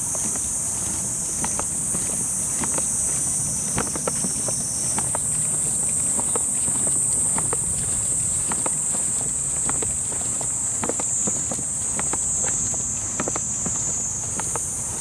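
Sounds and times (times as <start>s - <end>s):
footsteps on sandy dirt: 0.0s - 15.0s
high-pitched insect drone: 0.0s - 15.0s.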